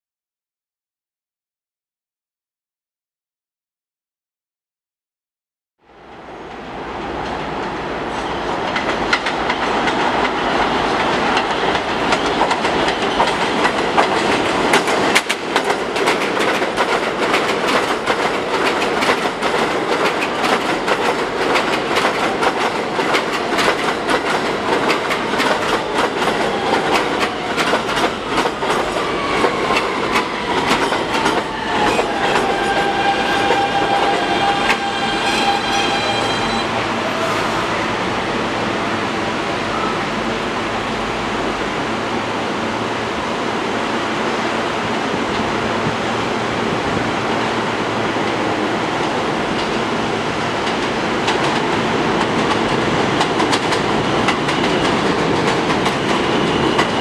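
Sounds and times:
train wheels clattering over rail joints: 8.7 - 33.7, 50.6 - 57.0.

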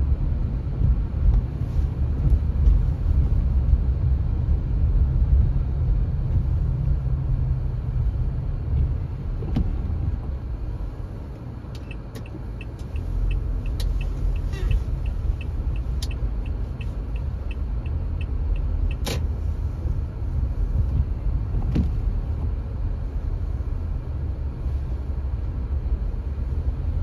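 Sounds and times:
car engine and tyres rumbling: 0.0 - 27.0
turn signal ticking: 8.6 - 22.6.

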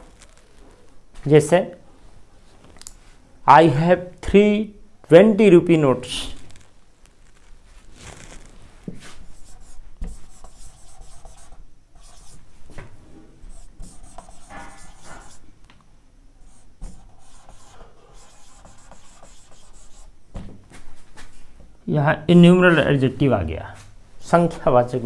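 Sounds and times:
marker writing on whiteboard: 9.2 - 12.4, 13.5 - 15.4, 16.5 - 20.1.

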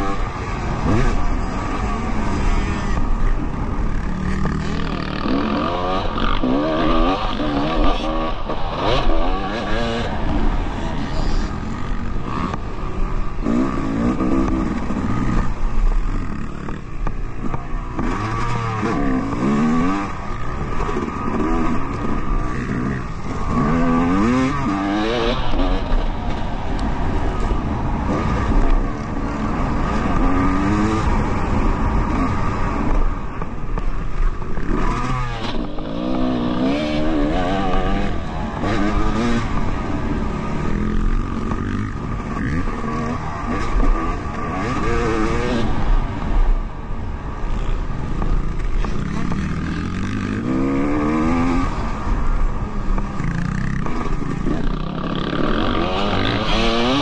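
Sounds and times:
dirt bike engine revving: 0.0 - 46.3, 47.3 - 52.2, 53.0 - 57.0.

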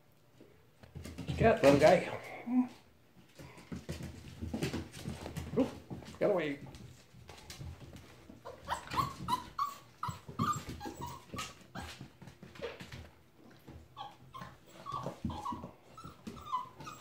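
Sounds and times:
puppies whimpering and yipping: 8.4 - 12.8, 13.9 - 17.0.

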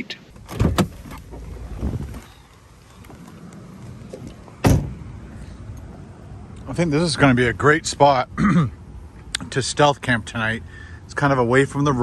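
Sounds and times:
car door latch clicks: 0.3 - 1.5
car door shutting with a thud: 0.4 - 2.4, 4.6 - 5.0.

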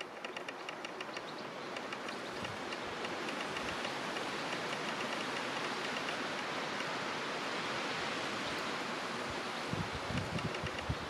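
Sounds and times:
faint high ticks: 0.0 - 7.0, 9.8 - 11.0
wind buffeting microphone: 9.2 - 11.0.

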